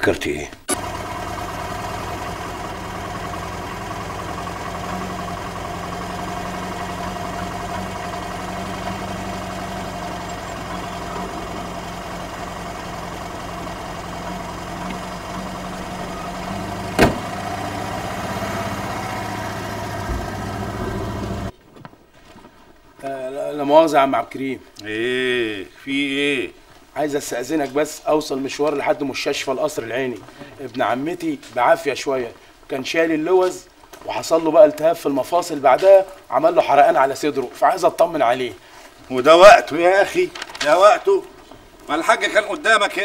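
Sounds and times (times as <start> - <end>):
car engine idling: 0.7 - 21.6
sharp knock: 17.0 - 17.3.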